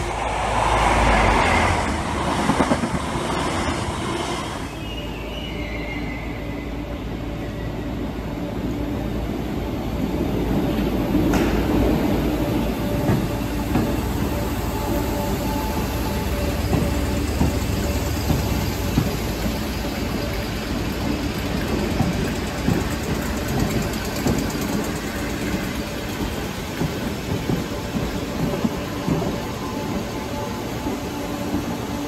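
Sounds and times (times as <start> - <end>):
electric train running past: 0.0 - 32.0
wheels clicking over rail joints: 10.7 - 32.0.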